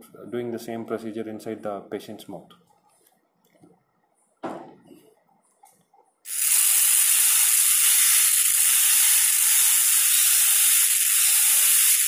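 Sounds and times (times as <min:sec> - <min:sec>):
dental drill whining: 0:06.3 - 0:12.0.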